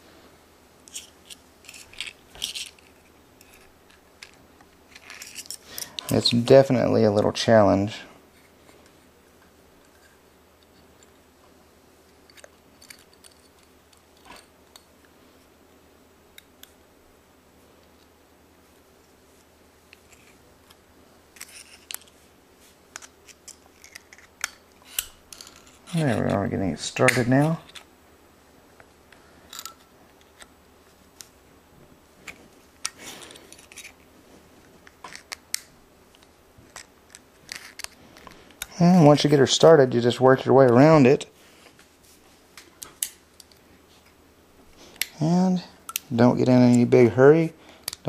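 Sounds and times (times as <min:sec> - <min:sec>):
screwdriver clicking and scraping metal: 0:00.9 - 0:06.1, 0:21.4 - 0:22.1, 0:35.0 - 0:38.6.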